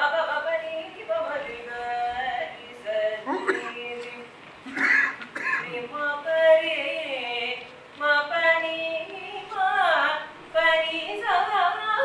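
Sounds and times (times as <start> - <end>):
woman singing slow melody: 0.0 - 4.4, 5.6 - 12.0.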